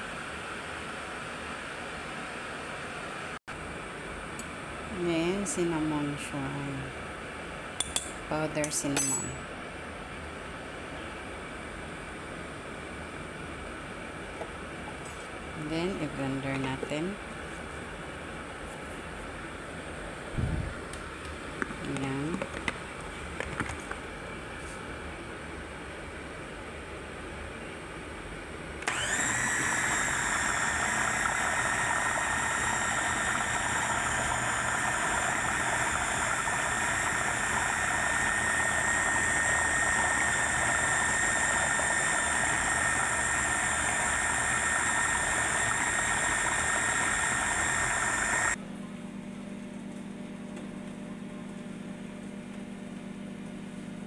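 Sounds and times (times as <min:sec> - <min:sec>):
blender whining: 0:28.8 - 0:48.6.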